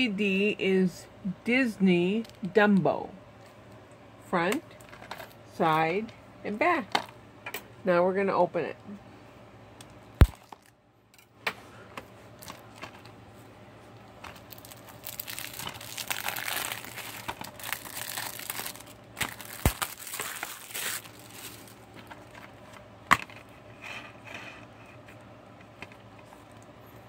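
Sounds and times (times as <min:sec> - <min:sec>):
cellophane wrap crinkling: 0:14.1 - 0:22.7.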